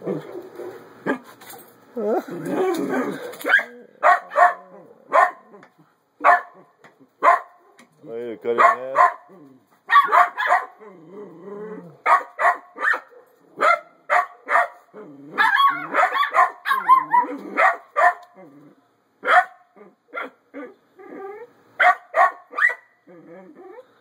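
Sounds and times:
dog growling: 0:02.0 - 0:04.0, 0:10.8 - 0:12.0, 0:14.9 - 0:16.0, 0:18.3 - 0:18.8, 0:23.0 - 0:24.0
dog barking: 0:03.5 - 0:05.5, 0:06.2 - 0:06.6, 0:07.2 - 0:07.6, 0:08.6 - 0:09.3, 0:09.9 - 0:10.8, 0:12.0 - 0:14.8, 0:15.4 - 0:18.3, 0:19.2 - 0:19.6, 0:21.8 - 0:22.9.

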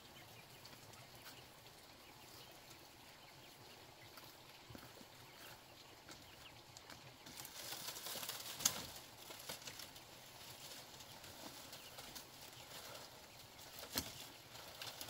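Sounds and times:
bamboo rustling and creaking: 0:04.1 - 0:15.0.

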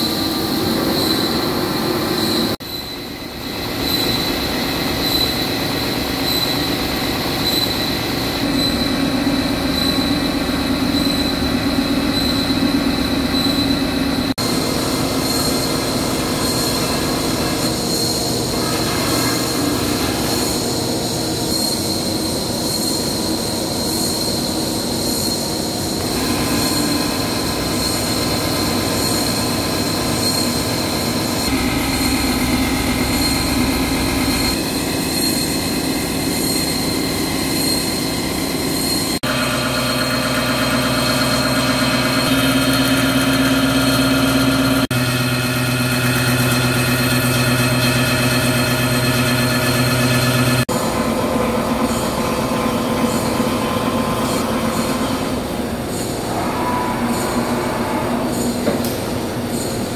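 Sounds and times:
boring machine metallic whine: 0:00.0 - 0:59.9.

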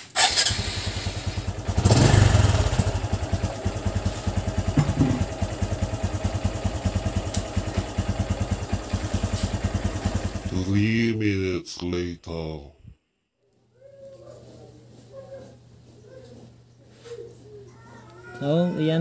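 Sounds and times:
motorcycle engine starting and idling: 0:00.0 - 0:10.9.

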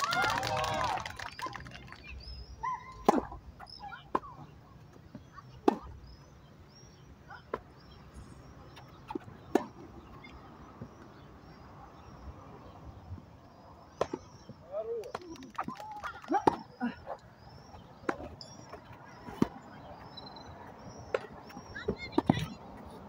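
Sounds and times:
birds chirping faintly: 0:00.7 - 0:23.0
tennis ball struck by rackets: 0:03.0 - 0:03.4.

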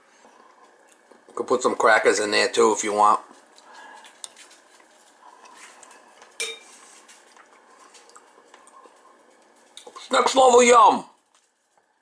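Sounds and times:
spoon clinking on bowl: 0:06.4 - 0:06.7.

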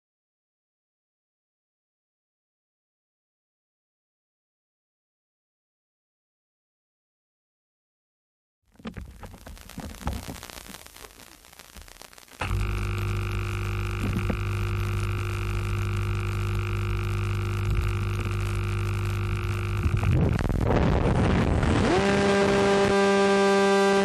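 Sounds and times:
steady electrical buzz: 0:08.8 - 0:24.0.

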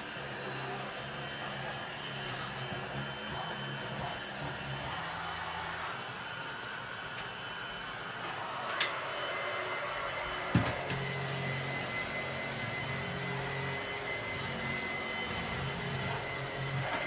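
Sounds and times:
vacuum cleaner motor whine: 0:00.0 - 0:17.0.

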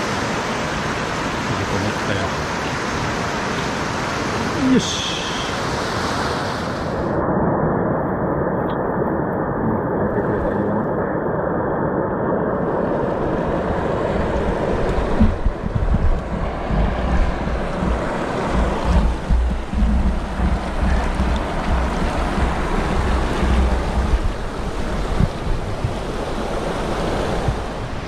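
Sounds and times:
stream water rushing: 0:00.0 - 0:07.2, 0:12.6 - 0:28.0
wind buffeting microphone: 0:12.5 - 0:28.0.

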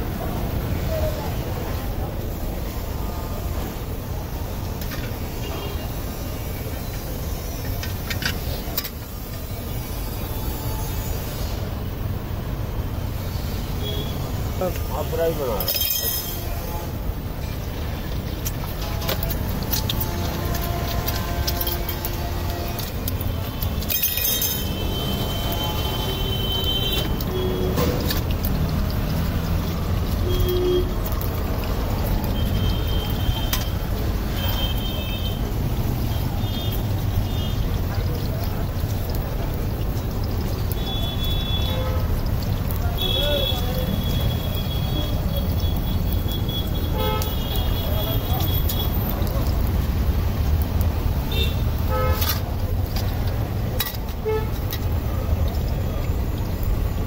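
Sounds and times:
low rumble of road traffic: 0:00.0 - 0:57.0
car horn toots: 0:43.0 - 0:48.9.

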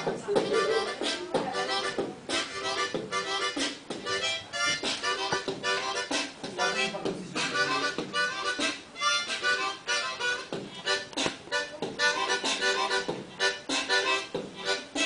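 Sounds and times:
beatboxed pitched notes: 0:00.0 - 0:15.0
beatboxing clicks and pops: 0:10.4 - 0:14.5.

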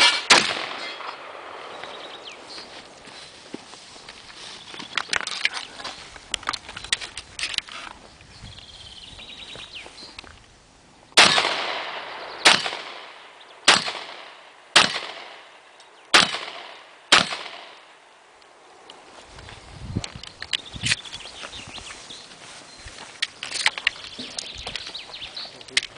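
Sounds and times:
shotgun blasts: 0:00.0 - 0:01.8, 0:11.2 - 0:18.0.

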